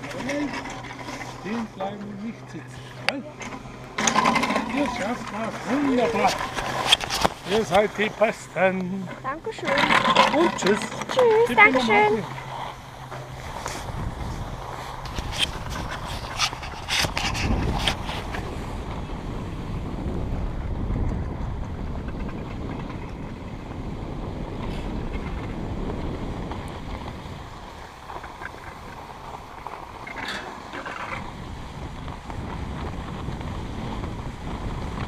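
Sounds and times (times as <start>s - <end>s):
wind rush on microphone: 0.0s - 35.0s
skis hissing over snow: 5.3s - 8.4s, 11.2s - 19.3s, 26.5s - 35.0s.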